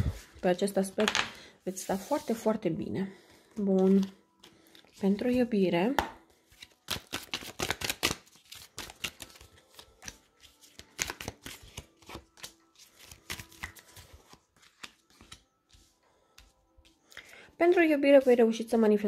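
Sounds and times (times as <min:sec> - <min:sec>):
cards snapping: 0:06.6 - 0:15.4.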